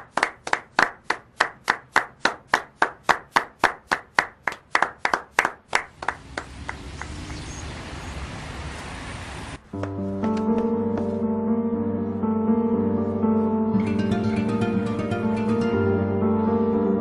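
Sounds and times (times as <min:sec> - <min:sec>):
slow hand clapping: 0:00.0 - 0:07.2, 0:09.8 - 0:10.7.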